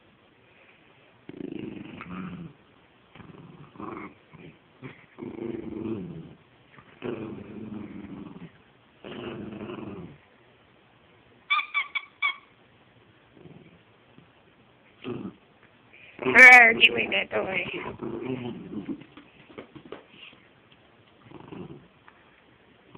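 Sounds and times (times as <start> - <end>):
small dog play-growling: 1.2 - 10.3, 13.3 - 14.3, 15.0 - 15.5, 16.2 - 20.0, 21.2 - 22.0.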